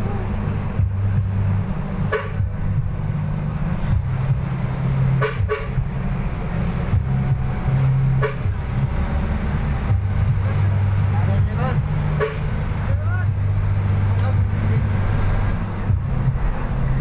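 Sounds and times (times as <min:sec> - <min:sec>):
vehicle engine and road rumble: 0:00.0 - 0:17.0
short horn toots: 0:02.0 - 0:02.5, 0:05.2 - 0:05.8.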